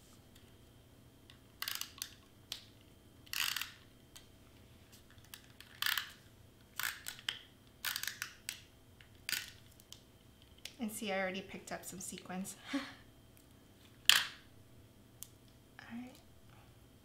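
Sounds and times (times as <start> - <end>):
tape dispenser crackling: 1.6 - 2.2, 3.3 - 3.8, 6.8 - 8.6.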